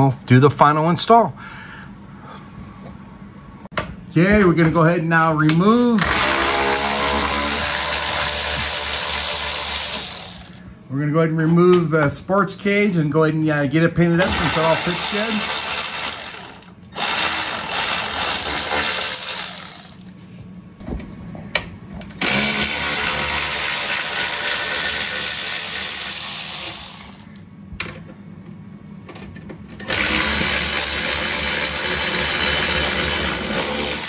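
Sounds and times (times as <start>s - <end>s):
cordless power driver running: 6.0s - 10.6s, 14.2s - 20.1s, 22.1s - 27.4s, 29.8s - 34.0s.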